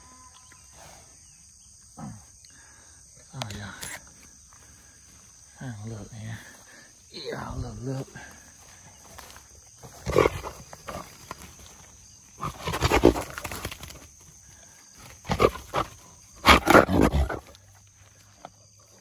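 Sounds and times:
wild boar growling and huffing: 0:09.7 - 0:19.0.

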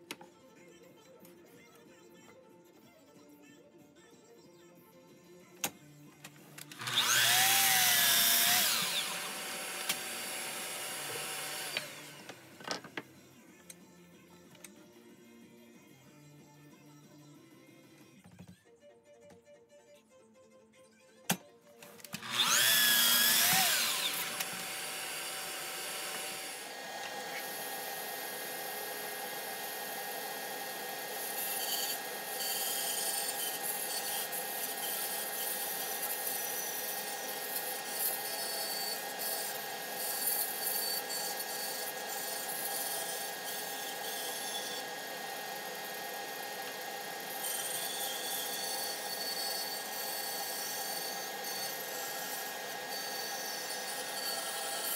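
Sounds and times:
miter saw cutting: 0:06.6 - 0:12.6, 0:22.1 - 0:54.9
band saw cutting wood: 0:06.6 - 0:12.8, 0:22.1 - 0:54.9.

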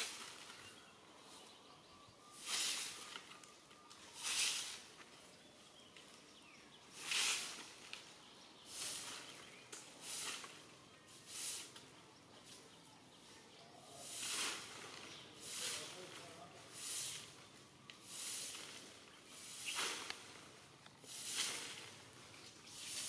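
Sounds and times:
short hissing rustles: 0:06.9 - 0:11.9, 0:14.0 - 0:17.4, 0:18.0 - 0:23.0.

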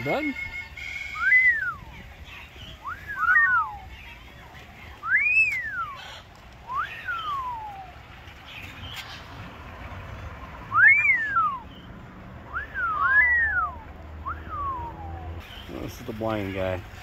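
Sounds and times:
rising and falling whistles: 0:00.2 - 0:01.9, 0:02.8 - 0:03.8, 0:05.0 - 0:06.0, 0:06.7 - 0:07.9, 0:10.7 - 0:11.9, 0:12.5 - 0:15.4.

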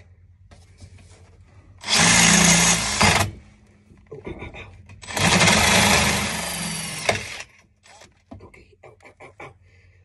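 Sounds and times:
cordless drill boring through metal: 0:01.8 - 0:03.3, 0:05.0 - 0:08.0.

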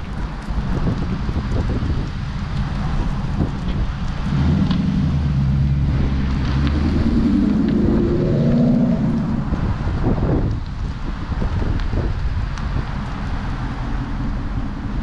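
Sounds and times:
car engine accelerating: 0:00.0 - 0:10.7.

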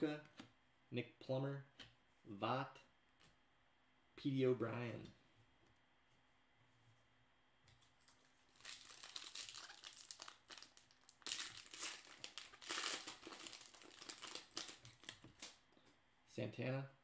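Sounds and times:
wrapper crinkling being torn: 0:08.0 - 0:15.6.

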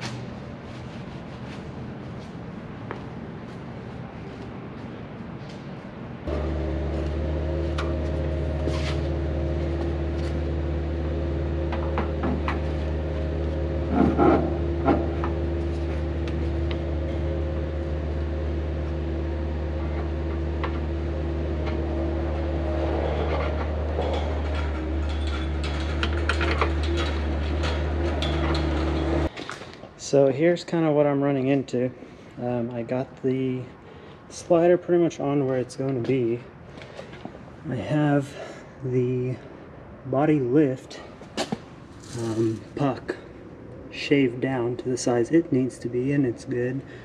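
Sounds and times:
machine hum with deep drone: 0:06.2 - 0:29.3.

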